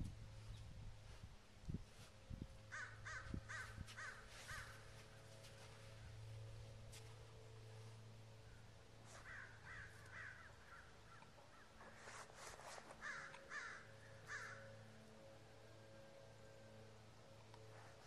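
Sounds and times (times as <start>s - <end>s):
steady low hum: 0.0s - 18.0s
crow cawing: 2.7s - 5.2s, 8.5s - 11.8s, 13.0s - 14.8s.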